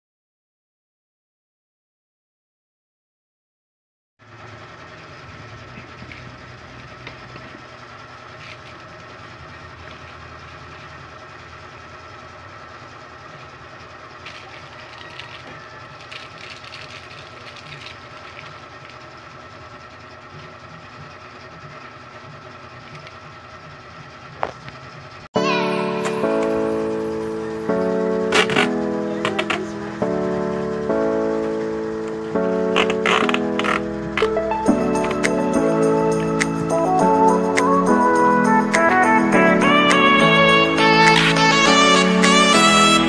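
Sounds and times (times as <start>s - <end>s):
machine hum with high tone: 4.3s - 43.0s
cardboard and paper rustling: 14.2s - 19.1s.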